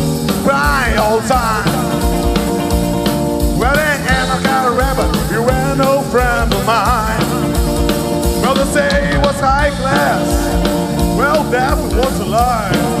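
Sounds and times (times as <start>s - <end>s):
drum kit steady beat: 0.0s - 13.0s
rock band playing: 0.0s - 13.0s.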